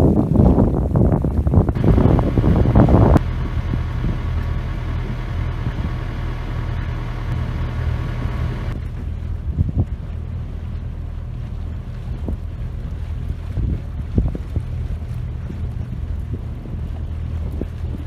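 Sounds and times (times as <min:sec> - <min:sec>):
wind on microphone: 0:00.0 - 0:18.0
boat engine humming: 0:01.2 - 0:18.0.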